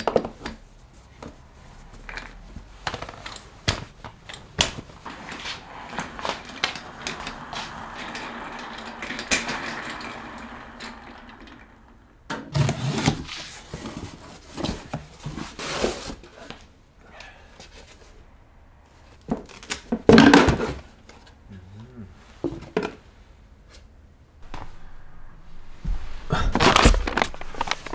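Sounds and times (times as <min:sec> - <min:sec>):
objects knocking and clattering: 0:02.1 - 0:12.6.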